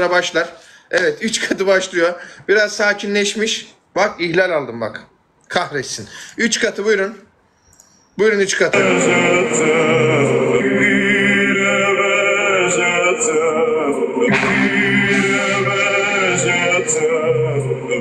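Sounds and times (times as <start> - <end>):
backing track music: 8.8 - 18.0
person singing long wavering notes: 8.8 - 18.0.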